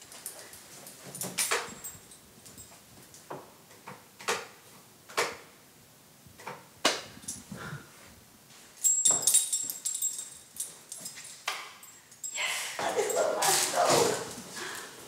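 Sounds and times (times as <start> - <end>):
jingling clatter: 8.8 - 13.4.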